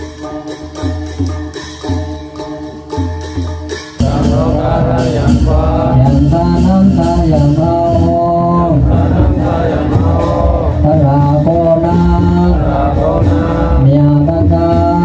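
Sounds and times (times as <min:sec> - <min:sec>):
voices chanting melodic prayer: 0:00.0 - 0:15.0
steady low drone tone: 0:04.0 - 0:14.8.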